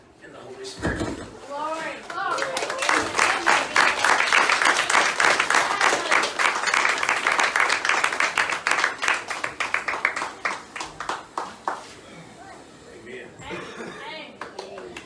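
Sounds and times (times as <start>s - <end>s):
group clapping and applauding: 2.0s - 12.0s, 14.4s - 15.0s.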